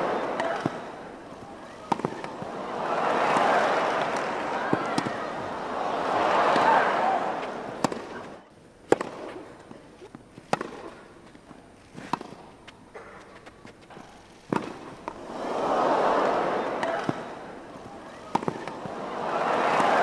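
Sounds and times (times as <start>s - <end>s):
crowd noise: 0.0s - 20.0s
tennis ball strikes on racquets: 0.1s - 2.6s, 3.2s - 5.5s, 7.4s - 9.5s, 10.4s - 13.4s, 14.0s - 15.2s, 16.7s - 19.0s.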